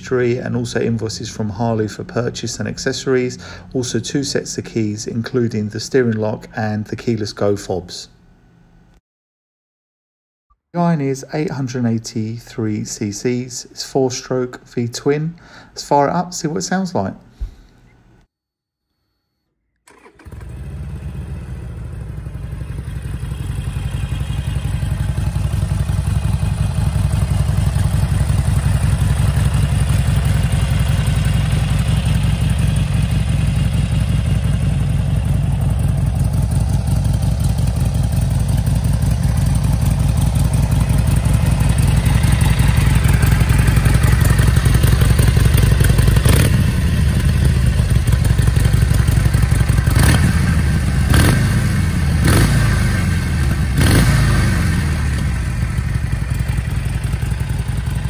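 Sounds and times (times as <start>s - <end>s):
motorcycle engine idling: 20.1s - 58.0s.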